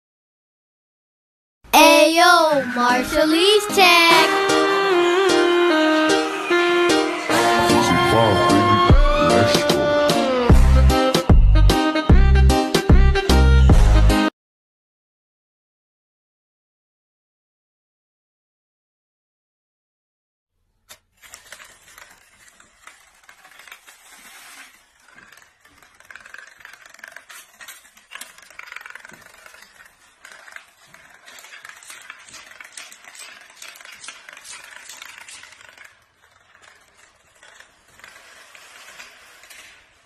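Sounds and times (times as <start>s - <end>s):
dominoes toppling clatter: 20.9s - 40.0s.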